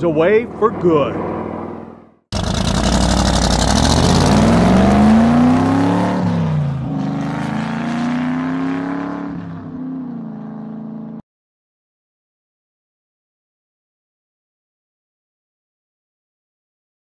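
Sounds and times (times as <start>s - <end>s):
engine revving: 0.4s - 11.2s.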